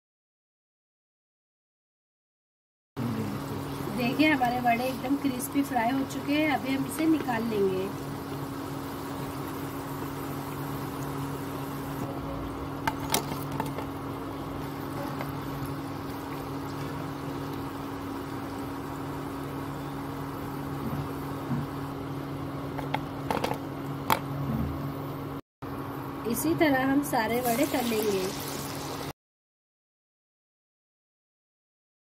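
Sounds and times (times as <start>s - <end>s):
food deep-frying in hot oil: 3.3s - 23.5s, 27.0s - 29.2s.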